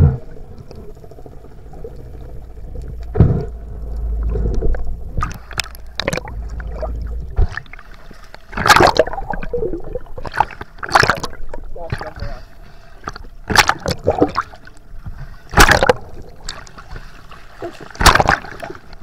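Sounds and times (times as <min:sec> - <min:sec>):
underwater knocks and bubbling: 0:00.0 - 0:19.0
underwater rumble: 0:00.0 - 0:19.0
water splash: 0:03.0 - 0:12.0, 0:13.5 - 0:14.6, 0:15.5 - 0:16.7, 0:17.6 - 0:19.0.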